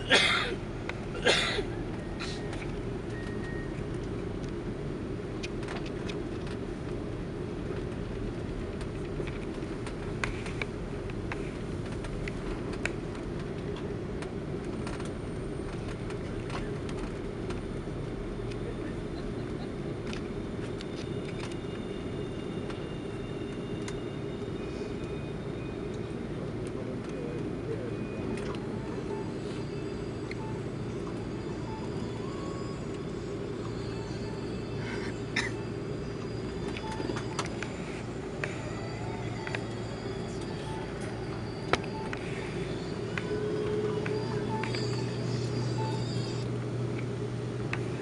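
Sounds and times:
aircraft cabin rumble: 0.0 - 48.0
faint high whine: 15.0 - 48.0.

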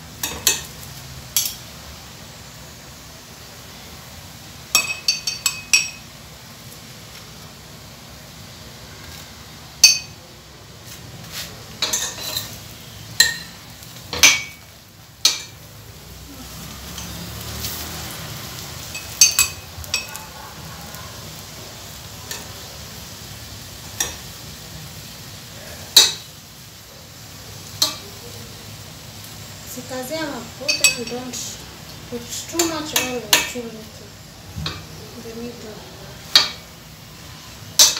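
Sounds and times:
low sizzle of frying: 0.0 - 37.9
metal spoon clinking on frying pan: 0.2 - 0.7, 1.4 - 1.6, 4.7 - 6.1, 9.8 - 10.2, 11.8 - 12.6, 13.2 - 15.6, 18.9 - 20.3, 27.8 - 28.0, 30.7 - 31.4, 32.6 - 33.6.

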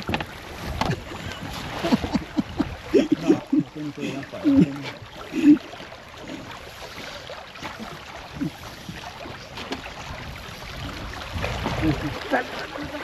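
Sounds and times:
river water rushing around boat: 0.0 - 13.0.

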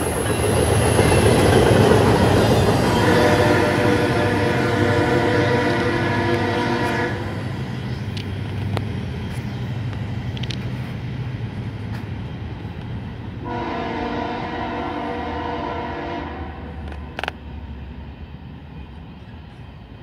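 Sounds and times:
train low rumble: 0.0 - 20.0
locomotive air horn chord: 2.8 - 7.3, 13.4 - 16.8.

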